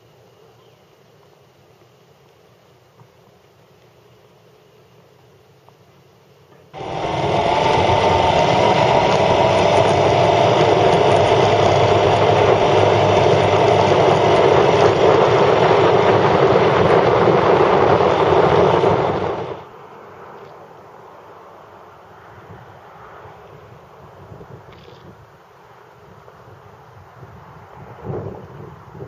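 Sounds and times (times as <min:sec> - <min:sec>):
motorcycle engine running: 0:06.8 - 0:19.6
rushing wind: 0:06.8 - 0:20.3, 0:21.6 - 0:25.4, 0:26.0 - 0:29.0
road noise: 0:06.8 - 0:29.0.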